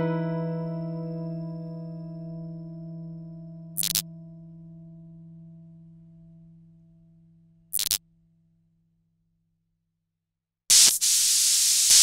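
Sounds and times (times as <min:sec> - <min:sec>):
held low musical tone: 0:00.0 - 0:07.6
static hiss: 0:10.7 - 0:12.0
white-noise static: 0:10.7 - 0:12.0.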